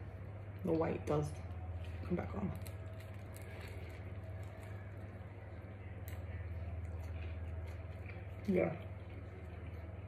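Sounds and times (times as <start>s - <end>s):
steady low hum: 0.0s - 10.0s
person chewing food: 2.6s - 10.0s.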